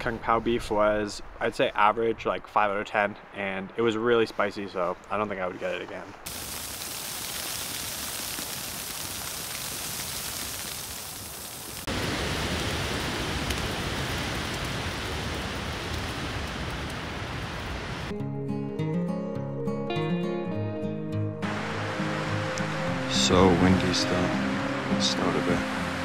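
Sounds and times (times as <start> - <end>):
wet snow falling hiss: 6.2 - 18.1.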